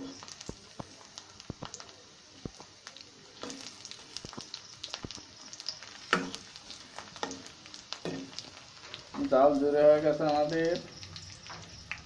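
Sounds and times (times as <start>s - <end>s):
garlic sizzling in oil: 0.0s - 12.0s.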